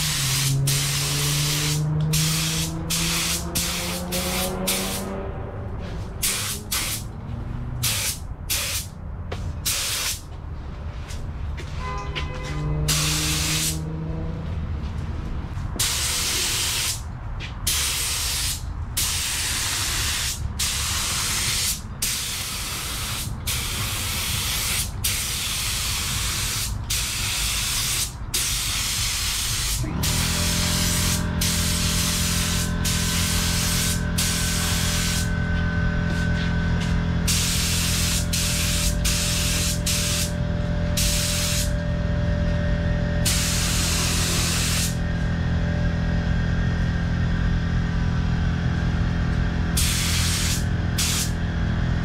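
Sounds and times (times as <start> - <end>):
paint spray gun hissing: 0.0 - 5.1, 6.2 - 7.0, 7.8 - 8.9, 9.6 - 10.2, 12.9 - 13.8, 17.7 - 35.3, 37.2 - 40.4, 41.0 - 41.8, 43.2 - 45.0, 49.8 - 51.4
low machine hum: 29.8 - 52.0.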